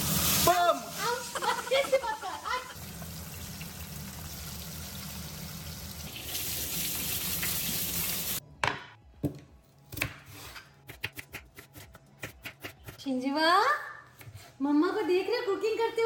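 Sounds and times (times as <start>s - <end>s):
fish sizzling in oil: 0.0s - 8.4s
kitchen tap running into colander: 0.0s - 8.4s.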